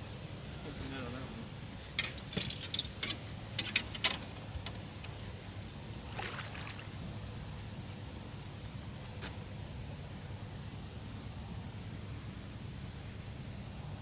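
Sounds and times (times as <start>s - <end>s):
steady low hum: 0.0s - 14.0s
sharp clicks and knocks: 2.0s - 5.2s
water lapping against boat hull: 6.0s - 7.0s.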